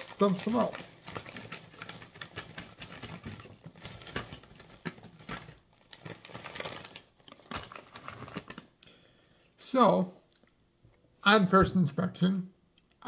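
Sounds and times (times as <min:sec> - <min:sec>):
foil bag crinkling: 0:00.0 - 0:08.8.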